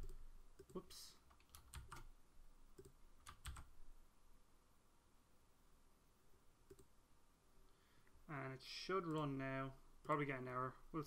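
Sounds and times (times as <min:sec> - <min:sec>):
computer keyboard keystrokes: 0:00.0 - 0:02.1, 0:02.8 - 0:03.7.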